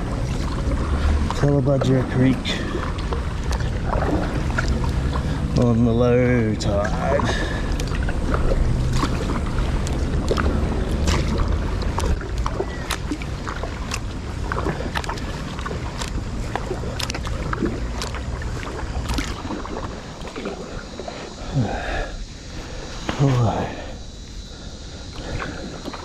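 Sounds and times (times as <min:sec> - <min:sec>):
water dripping: 0:00.0 - 0:23.6
low rumble: 0:00.0 - 0:25.9
paddle splashing in water: 0:00.0 - 0:26.0.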